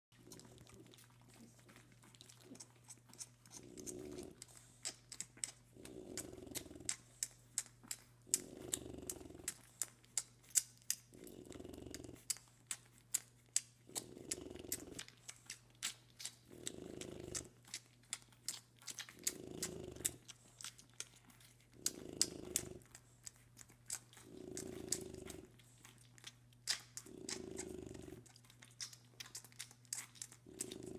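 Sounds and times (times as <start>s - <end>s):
puppies suckling wet smacking: 0.1s - 30.9s
dog snoring breaths: 0.2s - 10.0s, 11.1s - 12.8s, 13.9s - 15.6s, 16.4s - 17.7s, 18.9s - 23.4s, 24.0s - 26.1s, 27.0s - 28.4s.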